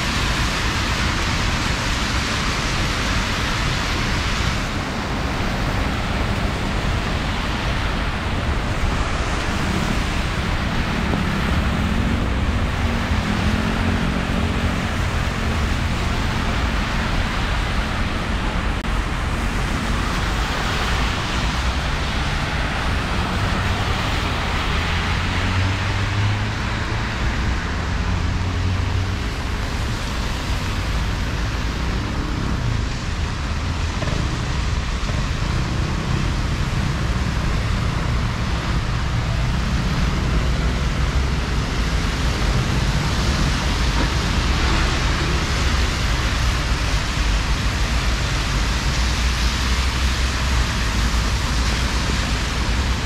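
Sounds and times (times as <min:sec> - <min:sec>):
cars passing on wet road: 0:00.0 - 0:53.0
heavy rain: 0:00.0 - 0:53.0
engine hum: 0:03.7 - 0:53.0.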